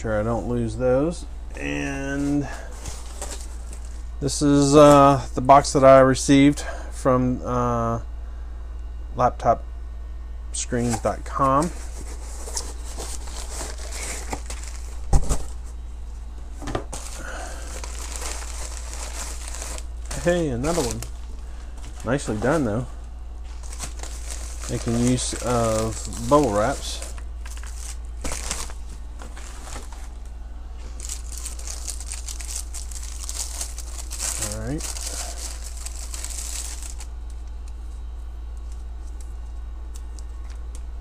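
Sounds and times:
low steady hum: 0.0 - 41.0
cardboard and plastic rustling: 1.9 - 5.2, 10.8 - 15.8, 16.6 - 37.5
plastic and bubble wrap crinkling: 2.0 - 5.1, 10.9 - 15.1, 16.9 - 22.8, 23.5 - 37.1.

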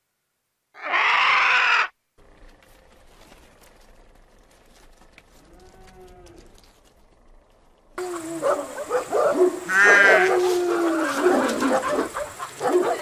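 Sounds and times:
loud animal call: 0.8 - 2.0, 8.0 - 12.6.

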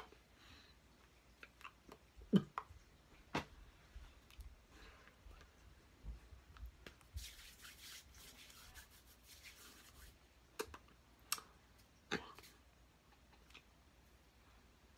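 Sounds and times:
hands and clothing rubbing: 6.7 - 10.2.

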